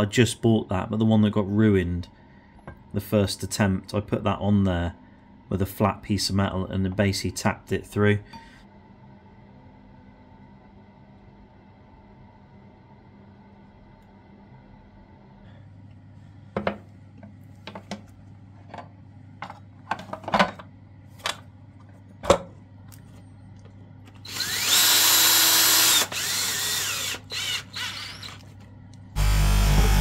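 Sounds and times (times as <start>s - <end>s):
cordless drill driving bolts: 24.2s - 28.4s, 29.2s - 30.0s.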